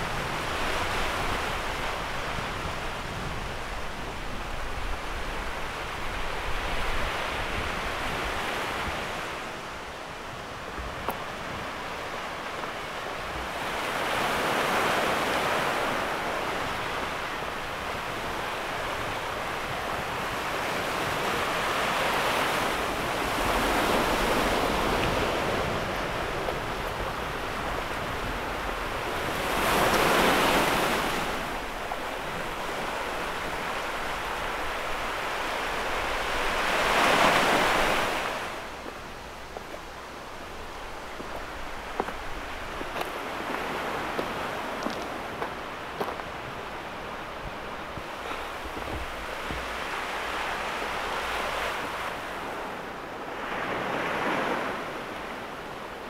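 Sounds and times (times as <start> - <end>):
sea waves breaking on pebble shore: 39.6 - 47.2.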